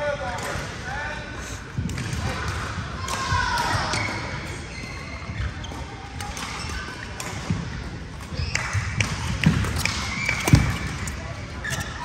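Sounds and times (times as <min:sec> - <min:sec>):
rackets hitting shuttlecock: 0:01.8 - 0:12.0.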